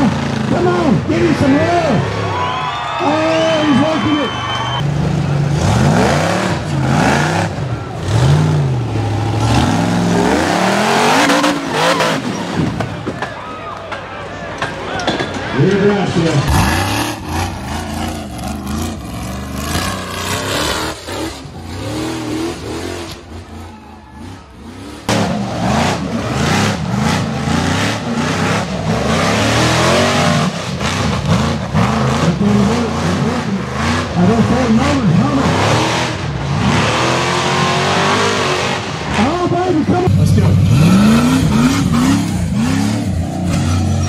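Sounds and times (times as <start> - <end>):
buggy engine revving hard: 0.0 - 2.5, 3.1 - 12.9, 15.8 - 44.0.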